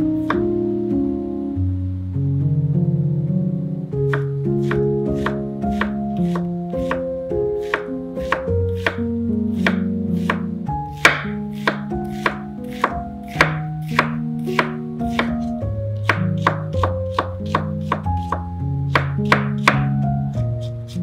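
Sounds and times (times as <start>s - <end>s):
background music: 0.0s - 21.0s
knife chopping on wooden board: 4.1s - 7.0s, 7.6s - 9.0s, 9.6s - 19.9s.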